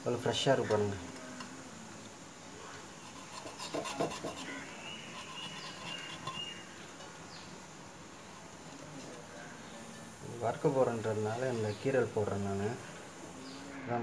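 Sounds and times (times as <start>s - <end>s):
knife scraping and cutting fish: 3.0s - 7.2s.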